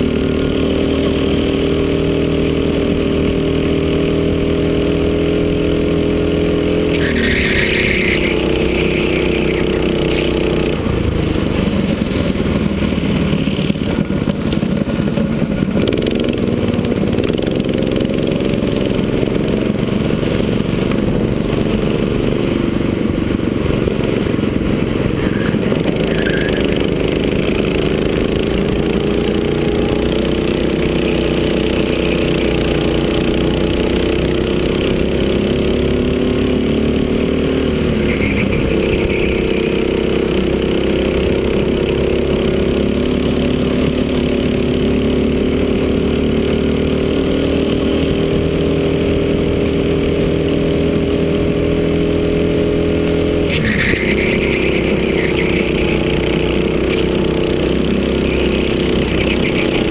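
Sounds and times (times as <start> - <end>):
go-kart engine: 0.0 - 59.9
brief high squeal: 6.9 - 10.4, 25.1 - 26.9, 53.5 - 56.1.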